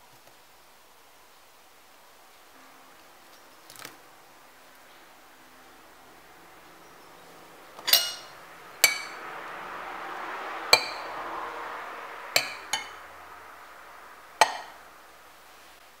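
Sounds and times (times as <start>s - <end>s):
metal spoon clinking ceramic bowl: 7.8s - 9.2s.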